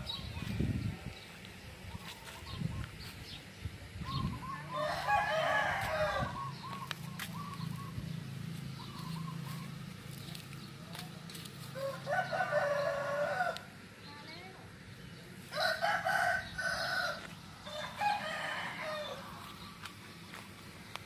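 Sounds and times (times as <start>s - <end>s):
rooster crowing: 4.5s - 6.6s, 11.8s - 13.7s, 15.5s - 19.4s
faint bird calls: 6.3s - 10.3s.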